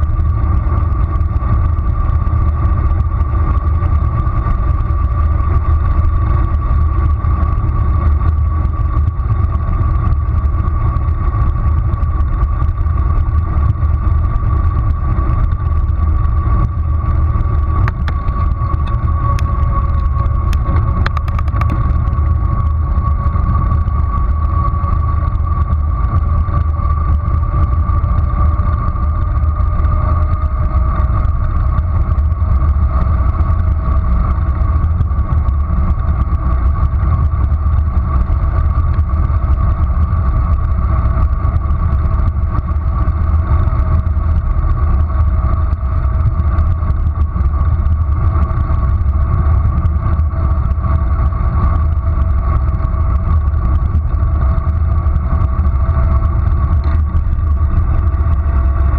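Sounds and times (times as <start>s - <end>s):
road noise: 0.0s - 58.9s
wind rumble on microphone: 0.0s - 58.9s.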